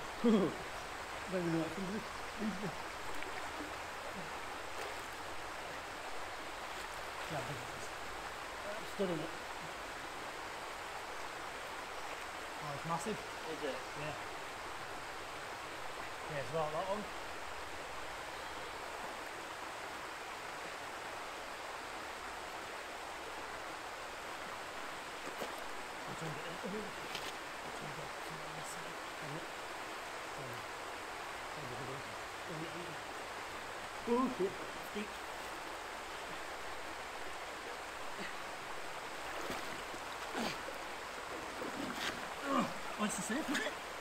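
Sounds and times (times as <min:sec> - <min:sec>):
water splashing: 0:25.1 - 0:29.5, 0:34.0 - 0:44.0.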